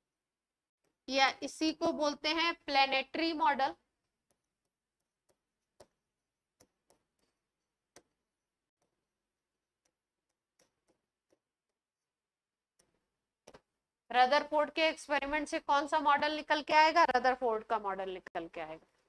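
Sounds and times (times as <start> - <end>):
pen tapping on a board: 4.1 - 12.1.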